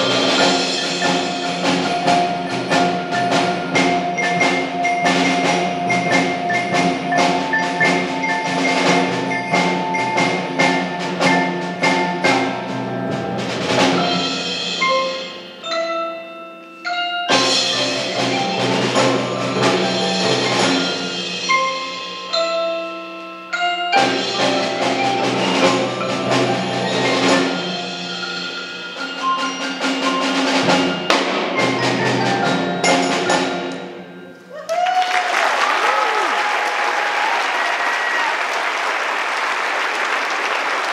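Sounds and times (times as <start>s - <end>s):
chimes ringing: 0.0s - 11.6s, 14.1s - 34.6s
mallet keyboards playing: 0.0s - 34.6s
wood block: 0.0s - 34.6s
drums: 0.0s - 39.7s.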